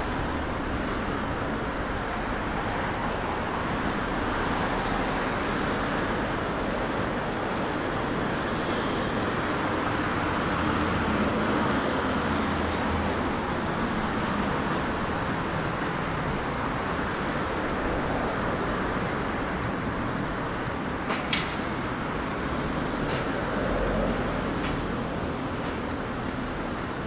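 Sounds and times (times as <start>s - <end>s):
street traffic noise: 0.0s - 27.0s.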